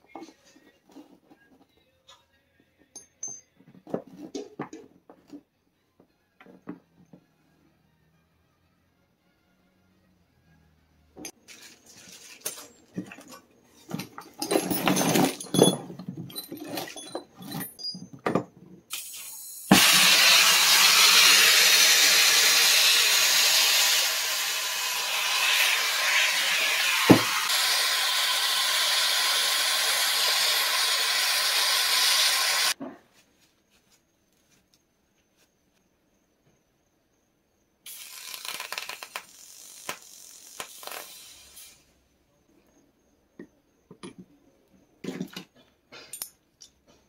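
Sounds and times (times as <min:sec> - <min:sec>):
brass fittings clinking: 0:12.2 - 0:18.5, 0:46.0 - 0:46.9
gas torch hissing: 0:18.9 - 0:32.8, 0:37.9 - 0:41.9.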